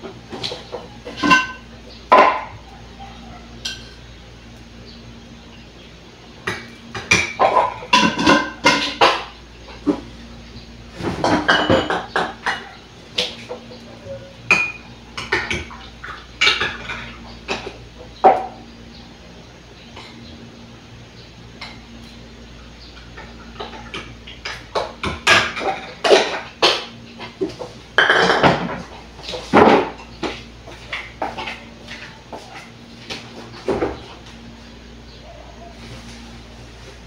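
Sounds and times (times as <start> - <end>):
kitchenware clattering: 0.0 - 4.0, 6.5 - 10.1, 11.0 - 13.8, 14.4 - 18.6, 23.0 - 32.7
steady low hum: 0.0 - 37.0.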